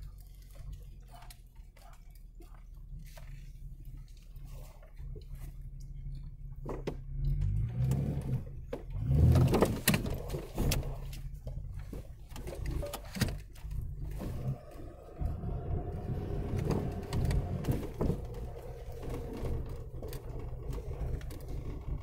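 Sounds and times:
engine rumbling: 0.0s - 22.0s
knocks and rattles: 6.2s - 22.0s.

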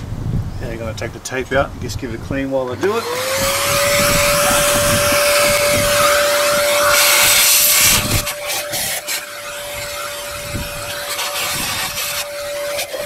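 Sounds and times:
vacuum cleaner whine: 2.6s - 13.0s.

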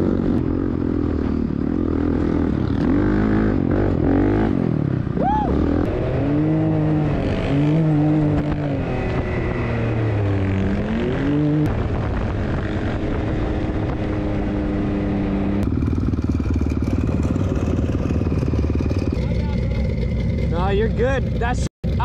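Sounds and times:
off-road vehicle engines revving: 0.0s - 22.0s.

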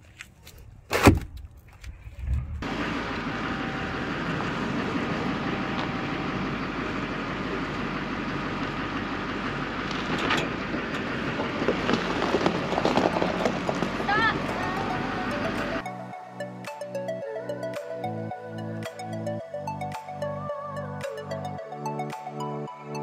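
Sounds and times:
truck engine idling: 2.6s - 15.9s.

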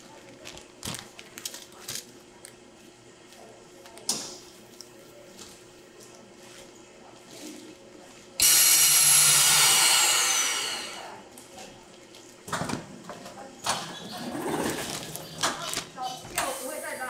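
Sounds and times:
loud hiss of air: 8.4s - 10.9s.

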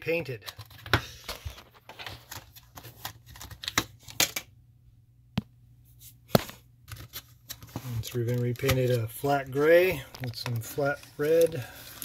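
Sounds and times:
plastic case rustling: 6.4s - 12.0s.

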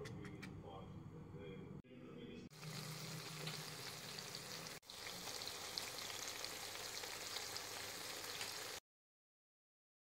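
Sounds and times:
onions sizzling in hot oil: 2.6s - 8.8s.

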